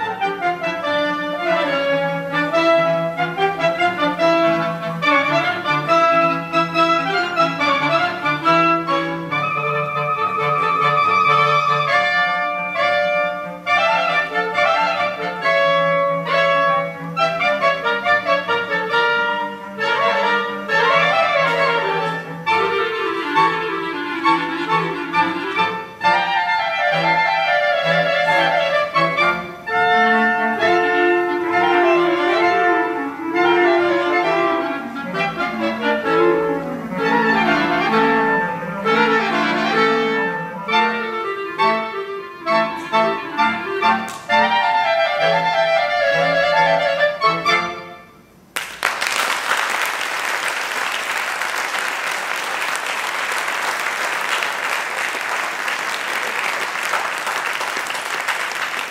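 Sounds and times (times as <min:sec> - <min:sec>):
clarinet choir playing a march: 0:00.0 - 0:48.4
audience applauding: 0:48.5 - 0:58.9.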